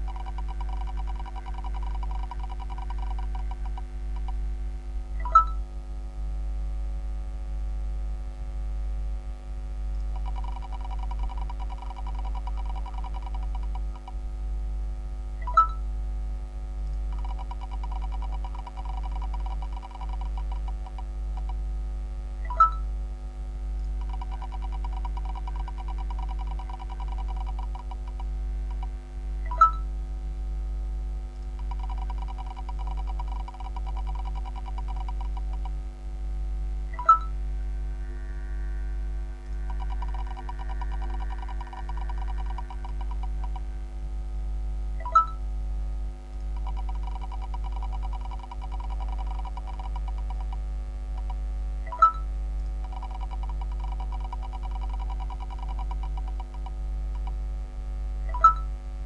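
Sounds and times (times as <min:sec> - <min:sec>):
low electrical hum: 0:00.0 - 0:59.0
spinning name wheel clicking: 0:00.1 - 0:03.8, 0:10.2 - 0:14.1, 0:24.0 - 0:28.8, 0:31.6 - 0:35.7, 0:39.6 - 0:43.6, 0:52.8 - 0:56.7
bright beep-like chime: 0:05.2 - 0:05.6, 0:29.5 - 0:29.8, 0:37.0 - 0:37.3, 0:45.0 - 0:45.4
prize wheel ticking: 0:39.6 - 0:43.6.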